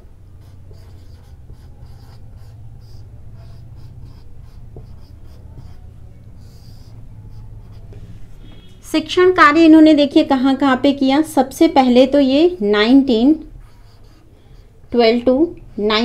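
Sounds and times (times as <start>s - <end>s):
marker writing on whiteboard: 0.3s - 8.8s, 11.6s - 16.0s.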